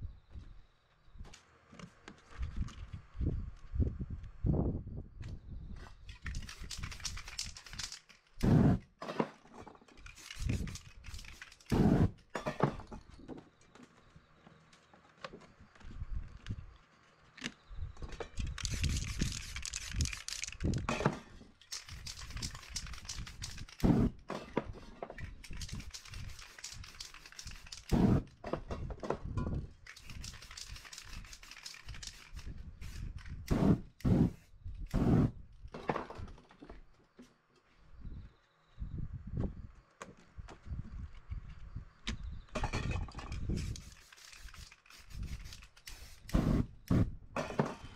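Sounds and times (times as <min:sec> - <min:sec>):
spray paint can hissing: 0:06.2 - 0:08.8, 0:10.0 - 0:12.2, 0:18.5 - 0:20.9, 0:21.7 - 0:24.2, 0:25.4 - 0:28.3, 0:29.9 - 0:35.3, 0:43.5 - 0:47.1.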